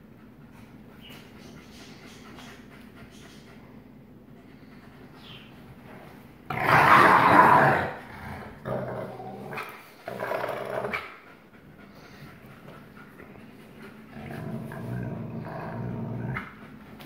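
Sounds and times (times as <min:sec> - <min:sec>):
dogs growling: 0:06.5 - 0:17.0.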